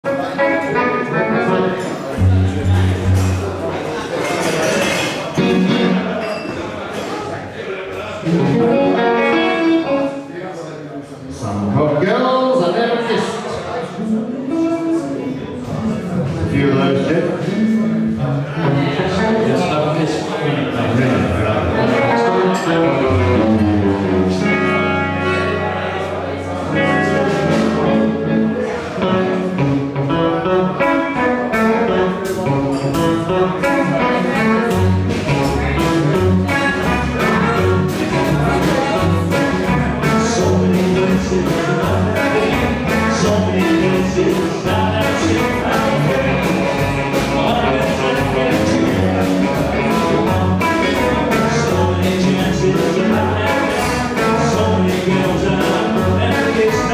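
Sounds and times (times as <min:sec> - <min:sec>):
double bass: 0:00.0 - 0:06.2, 0:14.0 - 0:56.9
electric guitars: 0:00.0 - 0:06.4, 0:08.2 - 0:10.4, 0:13.8 - 0:56.9
live blues band: 0:00.0 - 0:10.3, 0:13.2 - 0:56.9
drum kit: 0:00.2 - 0:06.3, 0:08.2 - 0:10.1, 0:21.0 - 0:56.9.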